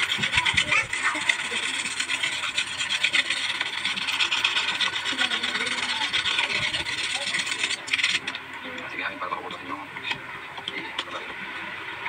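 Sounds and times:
hand scraping motor part: 0.0s - 8.4s.

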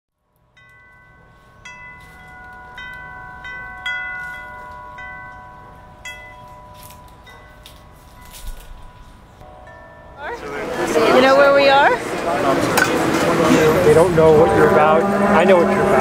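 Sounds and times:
chimes ringing: 0.5s - 12.0s.

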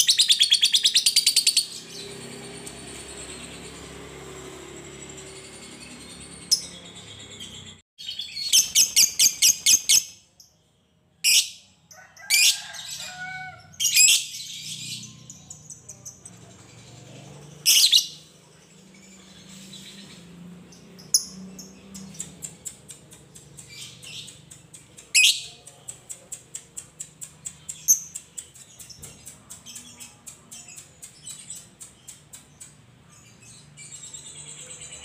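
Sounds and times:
lovebird chirping: 17.3s - 25.6s.

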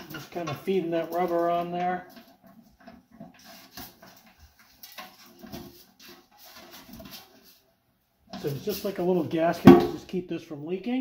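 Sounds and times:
faint clicks and rubbing: 0.0s - 7.7s.

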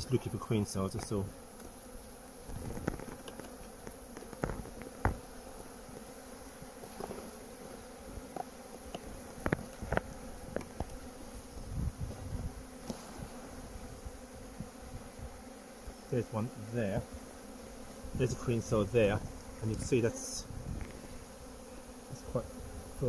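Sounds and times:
honeybees buzzing: 0.0s - 23.0s
hive tool clicking on wooden frames: 0.9s - 5.3s, 8.2s - 11.1s.

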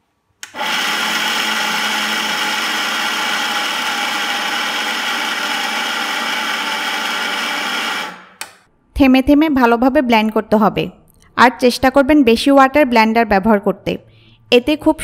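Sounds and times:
blender motor running: 0.4s - 8.4s.

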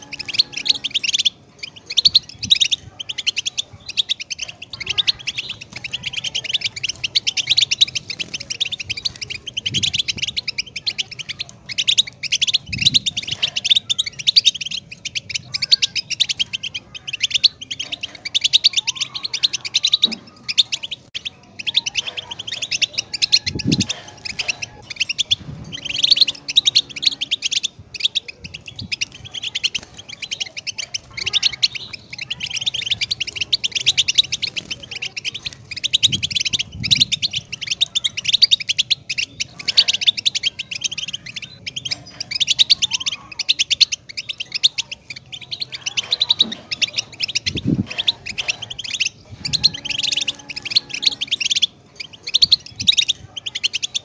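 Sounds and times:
finch singing tinkling twitter: 0.0s - 54.0s.

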